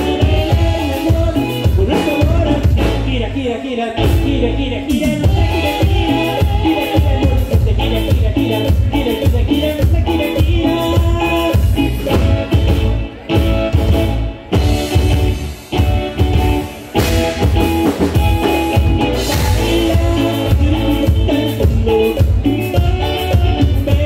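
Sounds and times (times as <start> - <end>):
live band music: 0.0 - 24.0
pulsing bass beat: 0.0 - 24.0.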